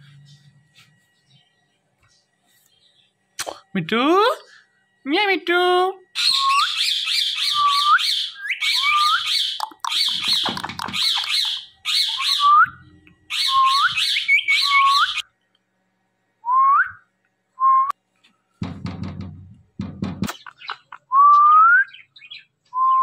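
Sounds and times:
parakeet squawking: 6.2s - 12.5s.

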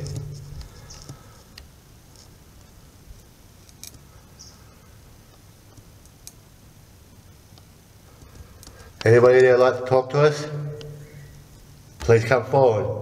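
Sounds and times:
low background hiss: 0.0s - 13.0s.

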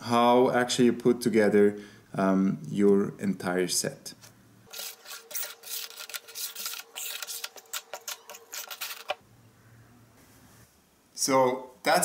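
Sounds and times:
faint steady hum: 0.0s - 12.0s
clicks and rubbing of hard objects: 4.7s - 9.2s.

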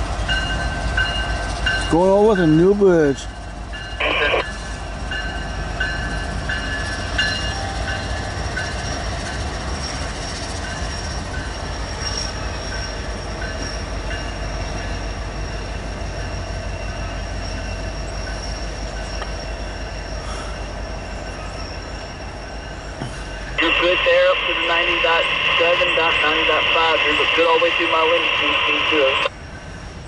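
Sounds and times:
locomotive engine rumble: 0.0s - 30.0s.

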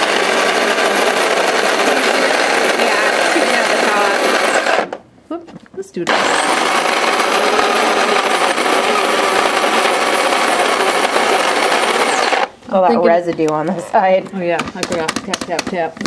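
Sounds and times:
coffee grinder whirring: 0.0s - 5.0s, 6.1s - 12.6s.

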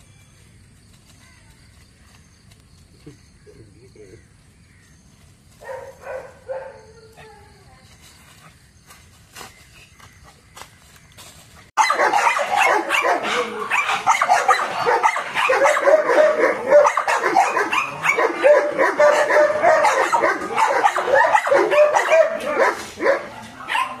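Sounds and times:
dogs barking and yipping: 5.6s - 7.5s, 11.7s - 24.0s.

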